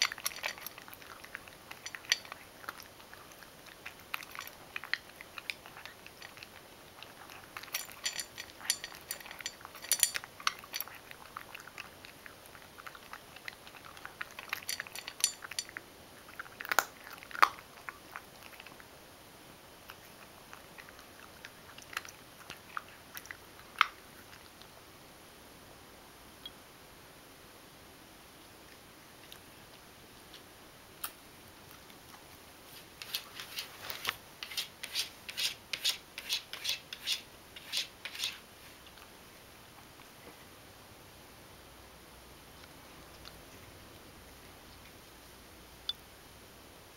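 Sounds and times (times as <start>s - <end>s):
cat crunching dry kibble: 0.0s - 19.0s, 19.8s - 24.8s.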